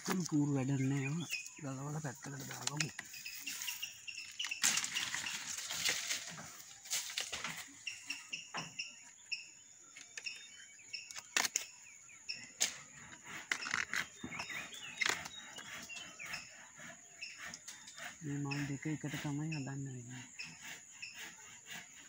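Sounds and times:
palm fronds rustling and crackling: 0.0s - 8.8s, 11.1s - 11.8s
birds chirping: 0.0s - 22.0s.

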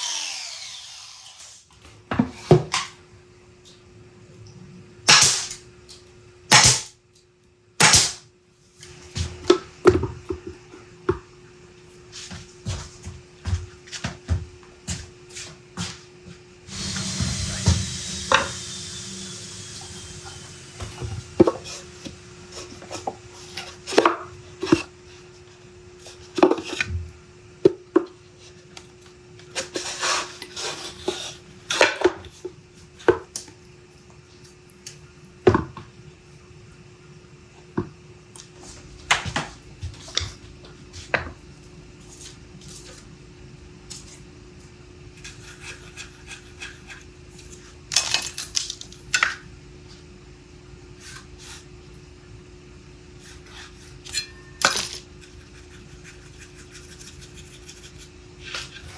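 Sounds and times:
steady low hum: 0.0s - 58.9s
nail gun firing: 5.1s - 5.6s, 6.5s - 6.9s, 7.8s - 8.2s
hiss: 16.7s - 20.6s.

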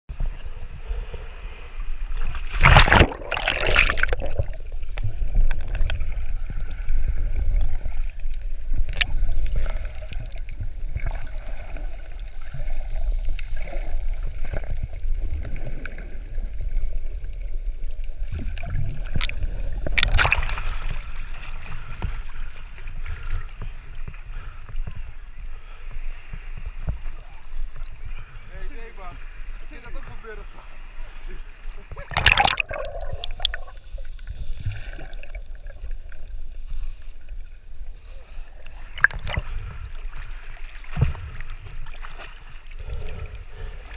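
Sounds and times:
muffled underwater wash: 0.1s - 43.9s
sea water splashing: 0.2s - 43.9s
small underwater clicks: 2.2s - 6.8s, 7.7s - 11.6s.

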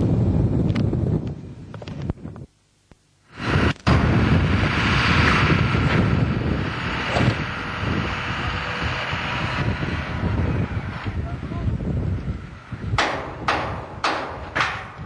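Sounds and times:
heavy machinery engine rumble: 3.3s - 15.0s.

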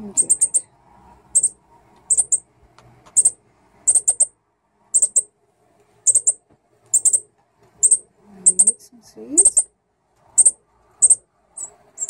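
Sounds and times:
bird chip calls: 0.0s - 0.7s, 1.3s - 2.5s, 3.1s - 4.3s, 5.0s - 5.3s, 6.1s - 8.8s, 9.4s - 9.7s, 10.4s - 12.0s.

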